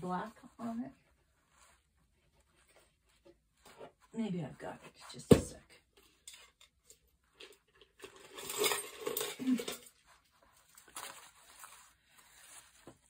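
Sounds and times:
zipper tape rustling and clinking: 6.0s - 13.0s.

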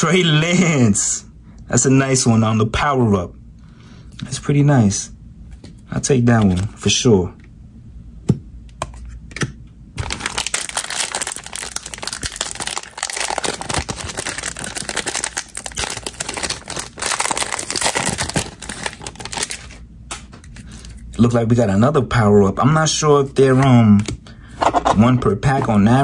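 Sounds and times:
plastic wrapper crinkling and tearing: 10.0s - 19.8s.

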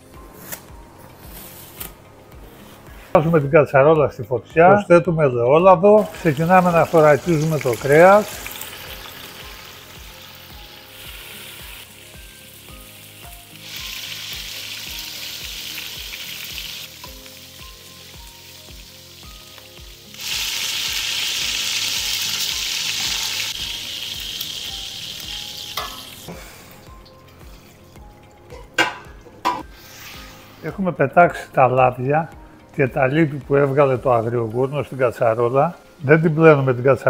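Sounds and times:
meat sizzling in oil: 6.0s - 28.1s
metal utensils knocking pots: 25.8s - 26.1s, 28.5s - 29.6s.

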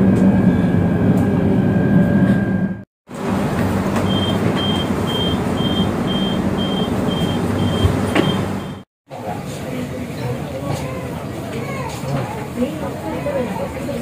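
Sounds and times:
door warning beeps: 4.0s - 8.8s.

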